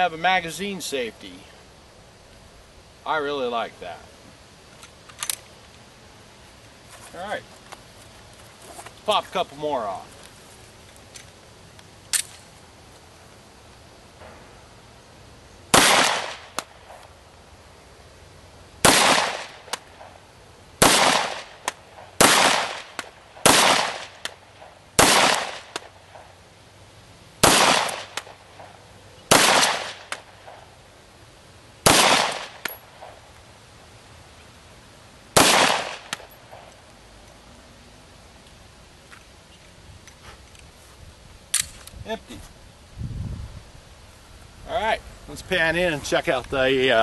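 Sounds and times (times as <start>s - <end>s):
pistol shots with echo: 15.7s - 16.7s, 18.8s - 20.1s, 20.8s - 24.2s, 25.0s - 25.8s, 27.4s - 28.4s, 29.3s - 30.6s, 31.8s - 33.2s, 35.4s - 36.2s.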